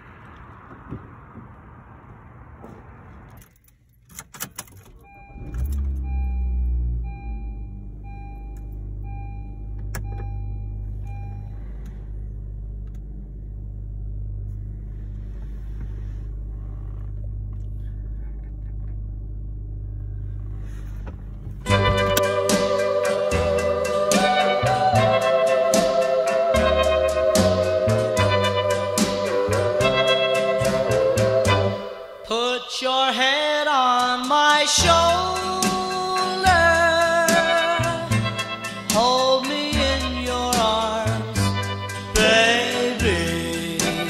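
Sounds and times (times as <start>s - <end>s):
car engine starting and idling: 0.0s - 32.4s, 33.3s - 44.0s
ignition clicks: 3.1s - 13.5s, 14.2s - 22.9s
car warning chime dings: 4.6s - 12.0s.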